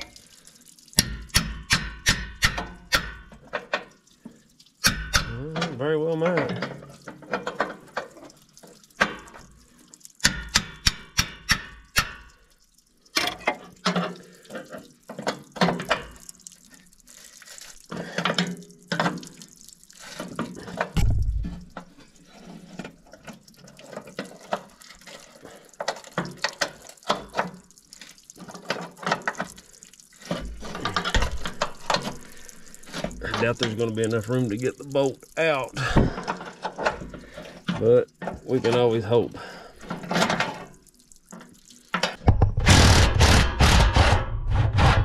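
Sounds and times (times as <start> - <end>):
dull thump: 21.0 - 21.6.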